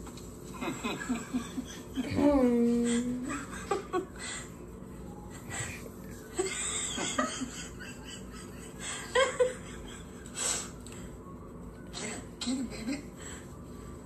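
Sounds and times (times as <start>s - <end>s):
laughter through speaker: 0.6s - 2.2s, 2.8s - 4.5s, 6.3s - 10.4s.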